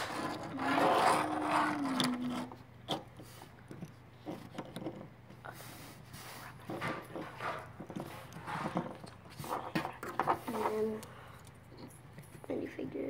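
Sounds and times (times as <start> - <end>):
plastic pieces clicking and scraping: 0.0 - 5.1.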